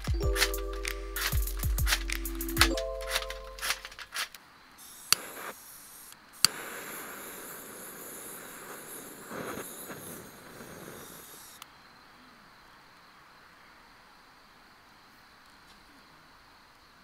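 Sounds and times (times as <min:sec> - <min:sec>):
gas torch igniter clicks: 0:00.0 - 0:04.4, 0:05.0 - 0:11.7
gas torch flame hissing: 0:01.1 - 0:11.6.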